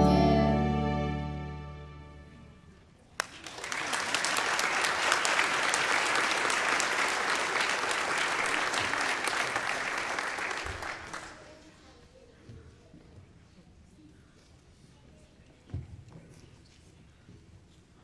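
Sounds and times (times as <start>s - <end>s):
crowd clapping: 3.2s - 11.5s.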